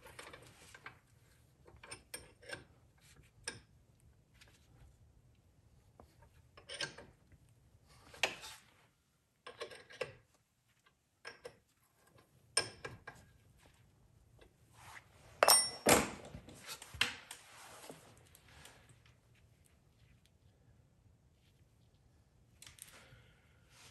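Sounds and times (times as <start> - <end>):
metallic ring: 15.4 - 16.1
metal tools clinking: 15.4 - 16.2.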